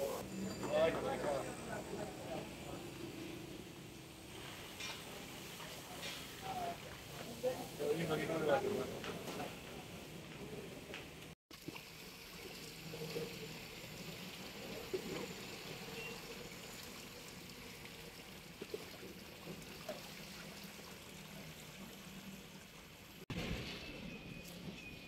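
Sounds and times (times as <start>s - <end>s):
water pouring into a tub: 11.5s - 23.0s.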